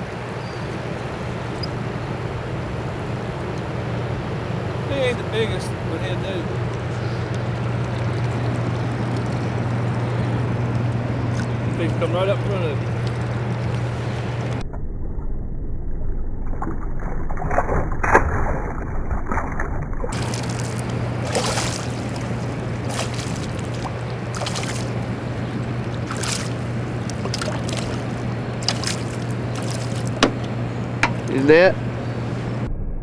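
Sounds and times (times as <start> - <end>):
boat motor humming: 0.0 - 14.6, 19.0 - 33.0
water rushing along hull: 0.0 - 14.6, 17.3 - 32.2
knocks: 30.2 - 31.2.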